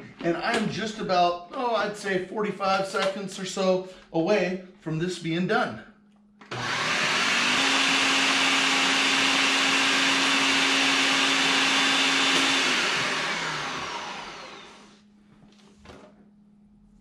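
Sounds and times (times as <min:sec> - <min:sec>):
blender motor running: 0:06.5 - 0:15.0.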